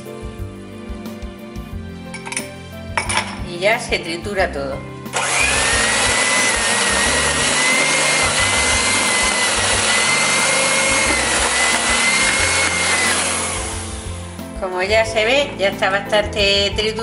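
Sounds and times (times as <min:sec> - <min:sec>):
electric hand mixer whining: 0:05.1 - 0:14.4
beaters whisking batter: 0:05.2 - 0:14.3.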